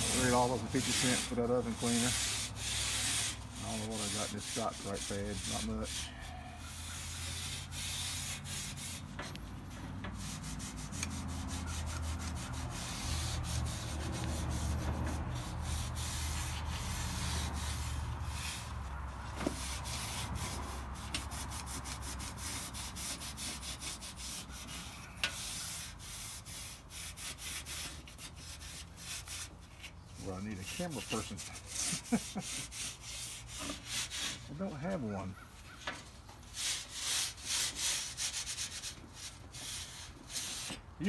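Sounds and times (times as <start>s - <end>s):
scouring pad scrubbing metal: 0.0s - 6.3s, 30.2s - 35.0s.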